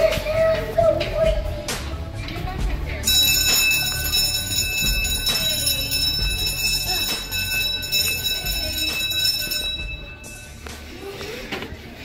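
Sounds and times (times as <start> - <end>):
electric bell ringing: 3.0 - 10.7.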